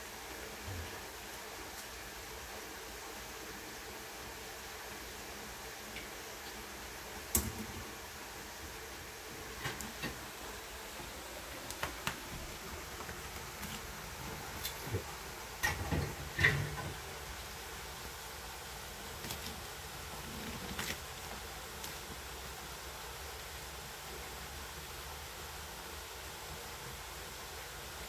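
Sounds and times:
steady hiss: 0:00.0 - 0:28.0
kitchen clicks and knocks: 0:15.6 - 0:17.0.

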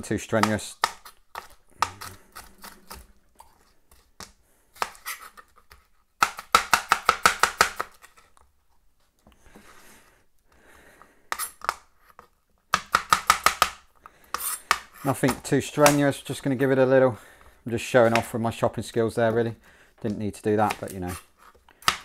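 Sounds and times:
knife chopping on plastic board: 0:00.4 - 0:03.1, 0:04.2 - 0:05.1, 0:06.2 - 0:08.0, 0:12.7 - 0:16.1, 0:20.6 - 0:21.2, 0:21.8 - 0:22.0.

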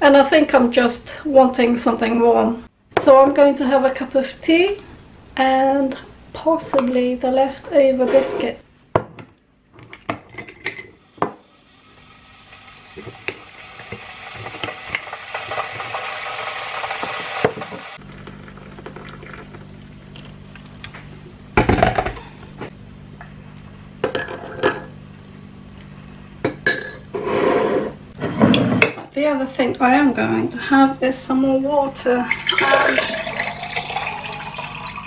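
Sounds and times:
kettle hissing: 0:11.2 - 0:20.3, 0:32.3 - 0:35.0.

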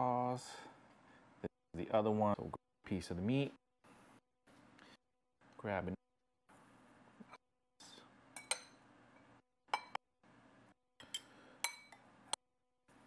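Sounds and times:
utensils clinking on porcelain bowl: 0:11.0 - 0:12.0.

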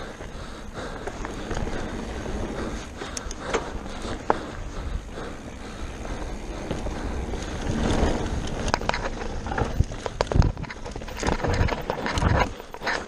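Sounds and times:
bike rattling and knocking: 0:00.0 - 0:13.0
tyres rolling over dirt: 0:00.0 - 0:13.0
wind on microphone: 0:06.6 - 0:12.6.

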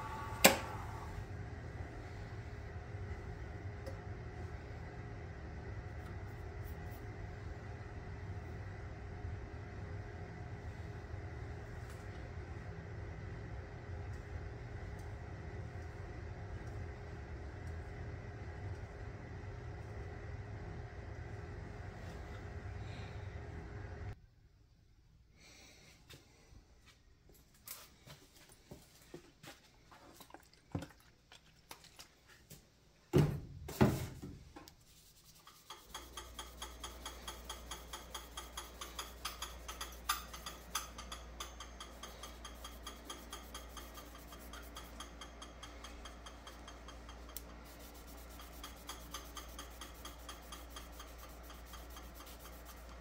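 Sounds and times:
wood lathe humming: 0:00.0 - 0:01.5
rubbing with regular ticks: 0:34.8 - 0:40.8, 0:47.6 - 0:53.0.

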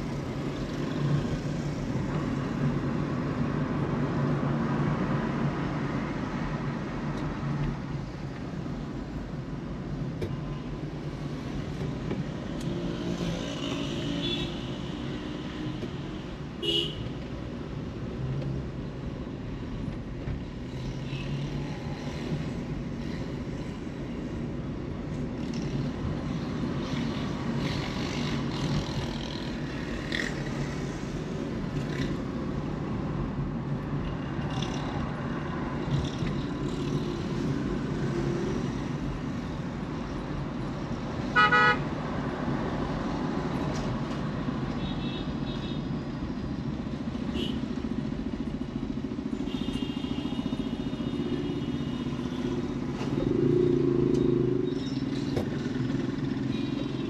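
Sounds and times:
road and traffic noise: 0:00.0 - 0:57.0
vehicle horn honk: 0:41.4 - 0:41.8.

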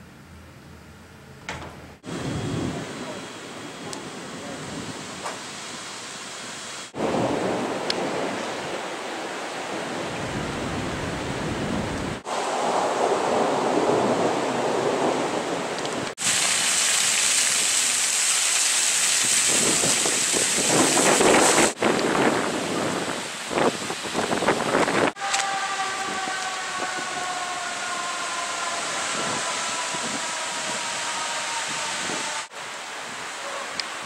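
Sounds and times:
wind: 0:00.0 - 0:34.0
rain: 0:02.0 - 0:34.0
wind buffeting microphone: 0:19.2 - 0:32.5.

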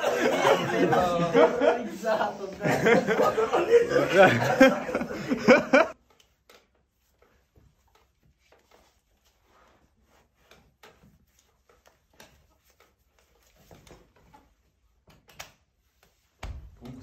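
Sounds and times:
men laughing loudly: 0:00.0 - 0:06.0
faint clicks and rustles: 0:05.9 - 0:17.0.

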